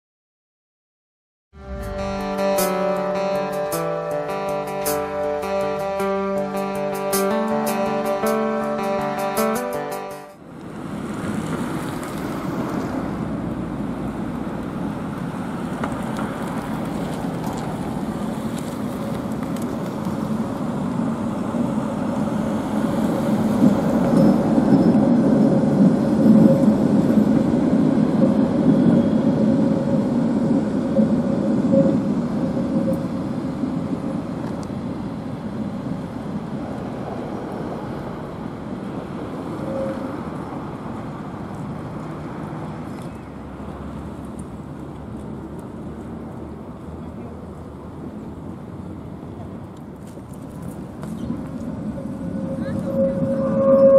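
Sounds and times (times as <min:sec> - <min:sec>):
tram rumbling along track: 0:01.6 - 0:53.9
thin steady tone: 0:51.7 - 0:53.9.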